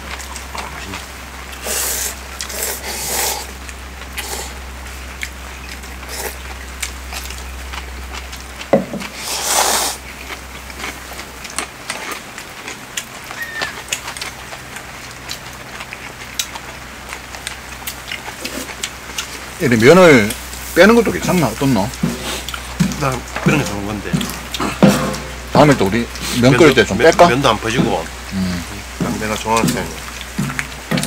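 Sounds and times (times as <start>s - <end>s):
rain pattering: 0.0s - 31.0s
noodles being slurped: 1.6s - 4.6s, 6.0s - 6.4s, 9.0s - 16.8s, 17.4s - 24.8s.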